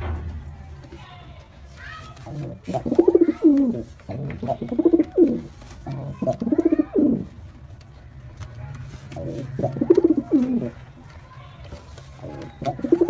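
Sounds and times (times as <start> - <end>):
pigeon cooing: 2.3 - 7.4, 9.0 - 10.8, 12.2 - 13.0.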